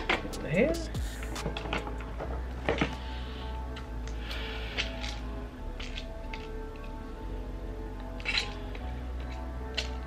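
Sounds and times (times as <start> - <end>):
steady low hum: 0.0 - 10.0
small objects clicking and knocking: 5.8 - 7.0, 8.0 - 10.0.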